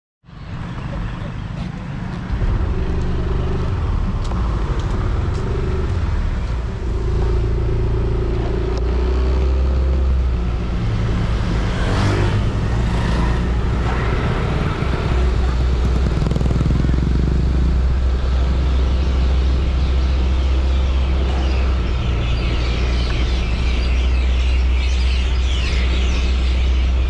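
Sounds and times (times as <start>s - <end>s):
rush of noise: 0.4s - 27.0s
scooter engine running: 14.5s - 17.7s.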